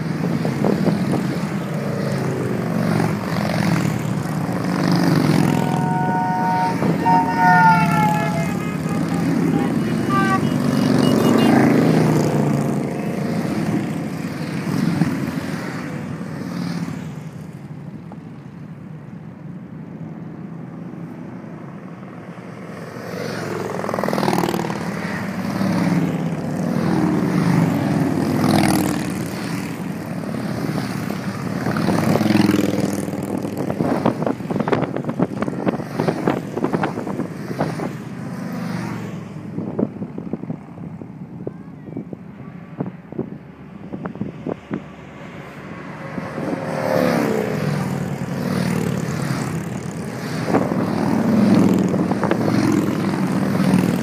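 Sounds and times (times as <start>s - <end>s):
motorcycles riding past: 0.0s - 18.6s, 21.2s - 54.0s.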